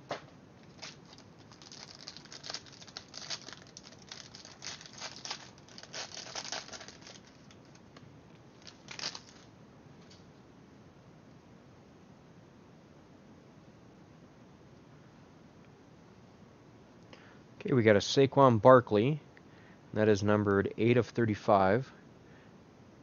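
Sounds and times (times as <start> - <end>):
plastic wrapping crinkling and tearing: 0.6 - 7.9, 8.5 - 9.5.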